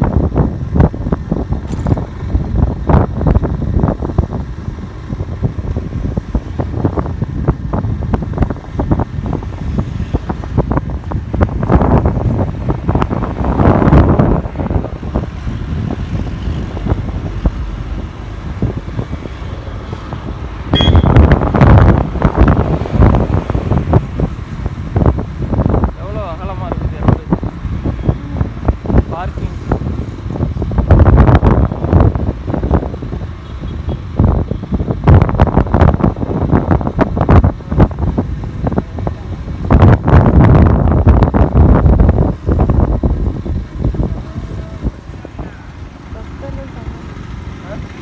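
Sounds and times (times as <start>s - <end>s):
motorcycle road noise: 0.0s - 48.0s
wind buffeting microphone: 0.0s - 48.0s.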